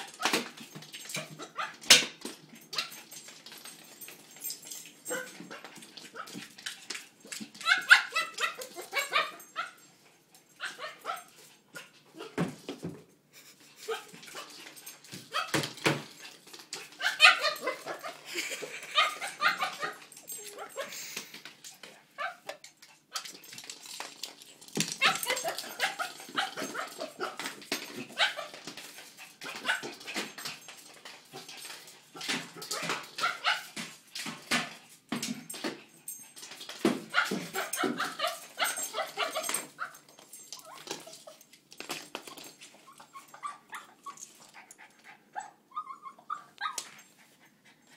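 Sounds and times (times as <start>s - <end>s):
small dog making play noises: 5.1s - 9.8s, 13.4s - 23.7s, 24.9s - 33.9s, 36.1s - 41.6s, 42.3s - 47.9s.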